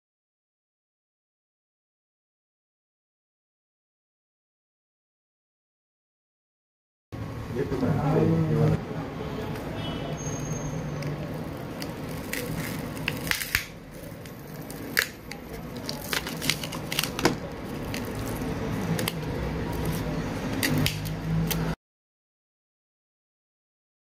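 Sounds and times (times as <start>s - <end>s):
adhesive strip peeling: 11.0s - 21.8s
plastic clicks and crackles: 11.0s - 21.8s.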